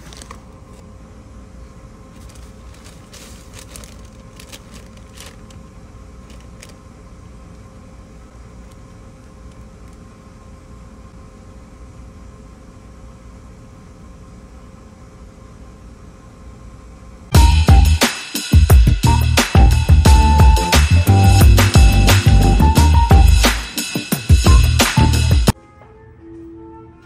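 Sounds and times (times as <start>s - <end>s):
paper bag crinkling: 0.0s - 0.8s, 2.1s - 5.6s, 6.2s - 6.8s
low machine hum with faint tone: 0.0s - 17.5s.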